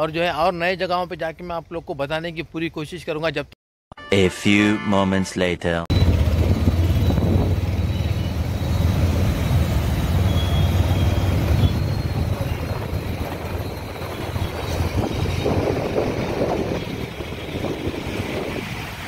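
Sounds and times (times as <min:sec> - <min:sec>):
road vehicle rumble: 0:05.9 - 0:19.0.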